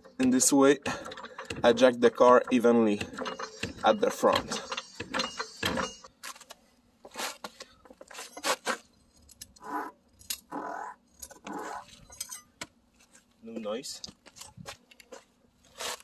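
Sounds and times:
metallic clinks and knocks: 0.0s - 6.2s, 11.1s - 12.7s.

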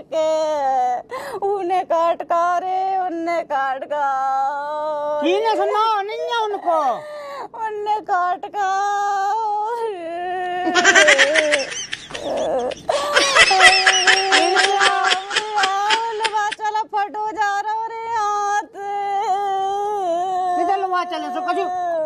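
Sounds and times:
woman wailing and sobbing: 10.2s - 16.6s.

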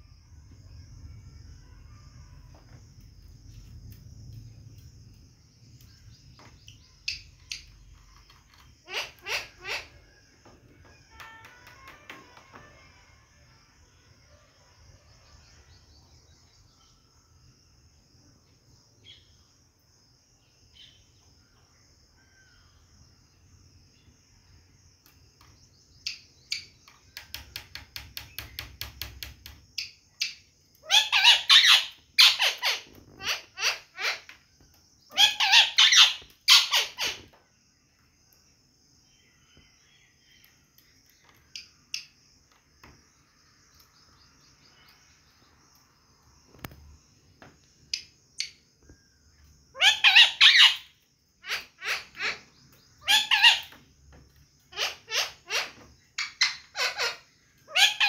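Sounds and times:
parakeet screeching: 8.8s - 10.1s, 30.8s - 34.3s, 35.1s - 37.3s, 49.8s - 53.8s, 54.7s - 58.0s.

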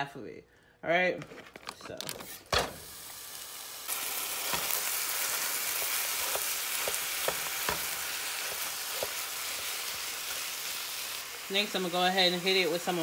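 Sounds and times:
meat sizzling in a frying pan: 2.6s - 13.0s.

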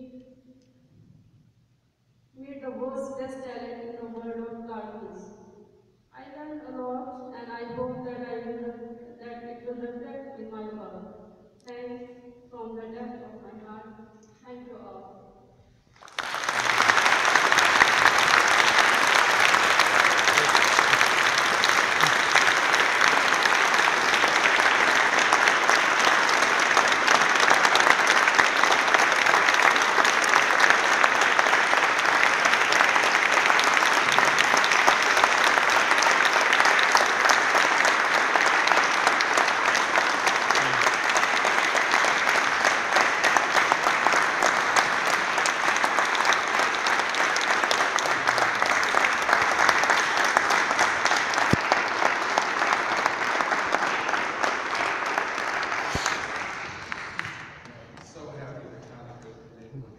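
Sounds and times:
audience applauding: 16.0s - 58.4s.

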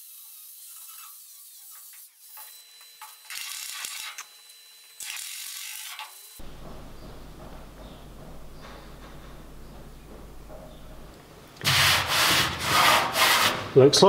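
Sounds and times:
angle grinder grinding metal: 0.0s - 7.8s
steady low hum: 6.4s - 11.6s.

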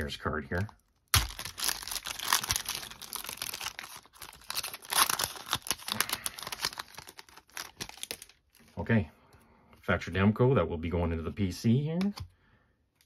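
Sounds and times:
foil wrapper tearing and crinkling: 1.0s - 8.4s.

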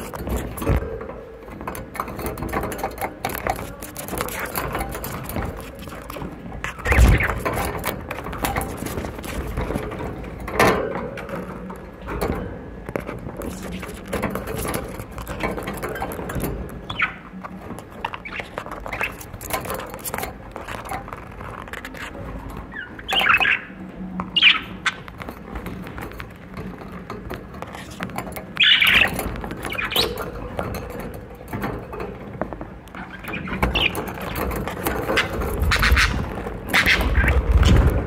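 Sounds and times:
beaks and claws on cage bars: 0.0s - 38.0s
budgerigars chirping: 16.9s - 17.2s, 22.7s - 23.8s, 24.4s - 25.1s, 28.6s - 30.2s, 33.1s - 34.4s, 35.0s - 37.4s.

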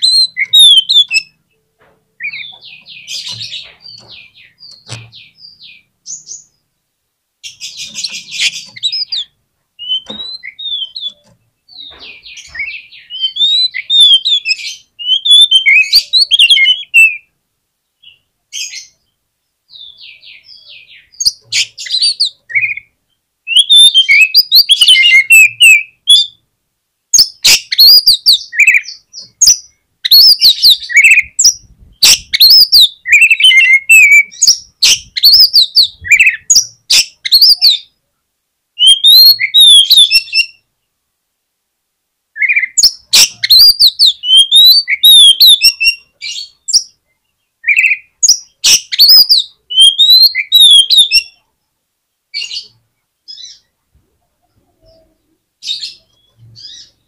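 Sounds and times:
bird singing whistles and clicks: 0.0s - 1.3s, 7.9s - 17.2s, 23.5s - 26.3s, 38.8s - 40.5s, 42.4s - 46.9s, 47.7s - 51.3s.

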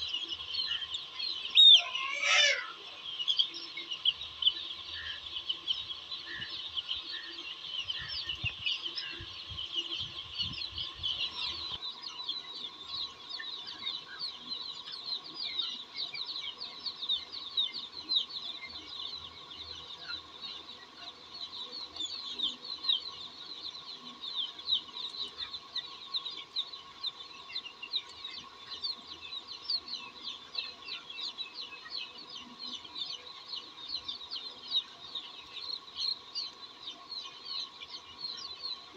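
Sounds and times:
chicks peeping: 0.0s - 38.9s.

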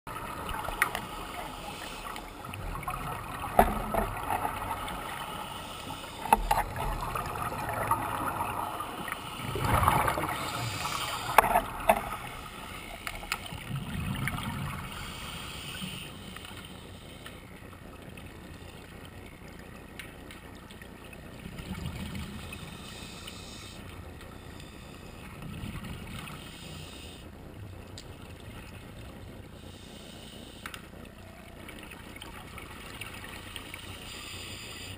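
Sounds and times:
bubbles bursting underwater: 6.6s - 12.4s
diver breathing through regulator: 9.1s - 12.9s, 14.8s - 17.4s, 29.6s - 30.7s.

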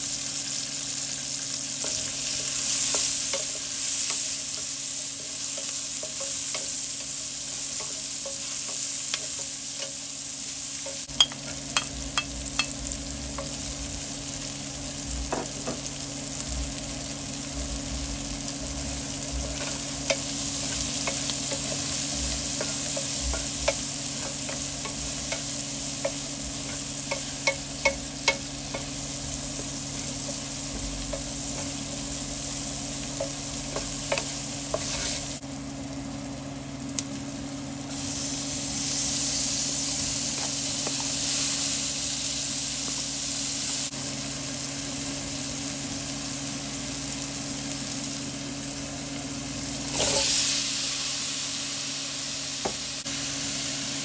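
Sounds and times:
steady low hum: 0.0s - 35.6s
onion and garlic sizzling in a pan: 0.0s - 54.0s
wooden spoon tapping a pan: 19.6s - 29.0s, 33.1s - 34.9s.

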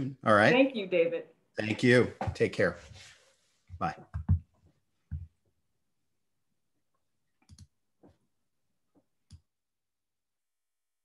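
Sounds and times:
computer mouse and keys clicking: 7.4s - 7.8s.

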